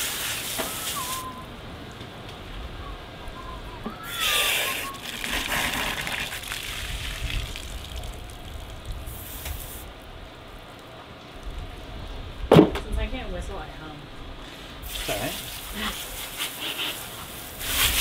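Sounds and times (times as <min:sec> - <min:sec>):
water spraying from hose nozzle: 0:00.0 - 0:01.2, 0:04.2 - 0:09.9, 0:14.8 - 0:18.0
wind rumbling on microphone: 0:05.4 - 0:10.3.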